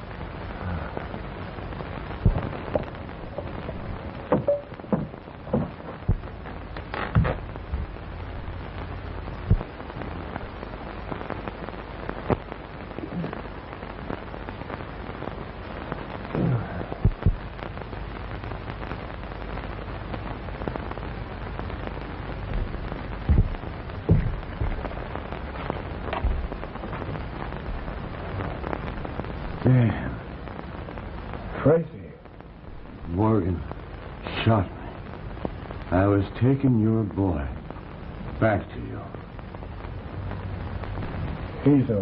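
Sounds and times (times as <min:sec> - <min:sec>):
film soundtrack hiss and crackle: 0:00.0 - 0:42.0
sharp knocks and thuds: 0:02.2 - 0:07.9, 0:09.5 - 0:09.7, 0:22.5 - 0:24.9, 0:26.1 - 0:27.1.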